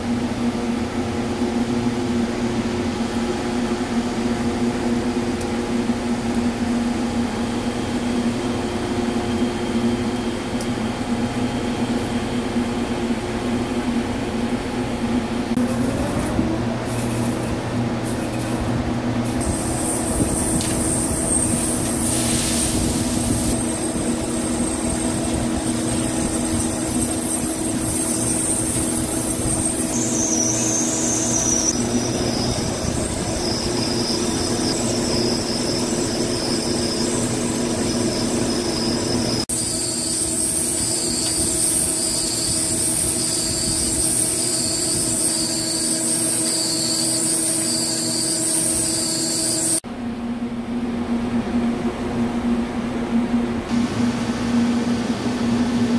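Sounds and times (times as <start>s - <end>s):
high thin cutting whine: 19.2s - 49.8s.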